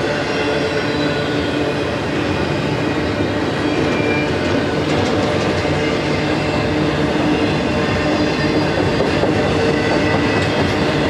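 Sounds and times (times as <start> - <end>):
high wheel squeal: 0.0 - 11.0
train wheels rumbling on rail: 0.0 - 11.0.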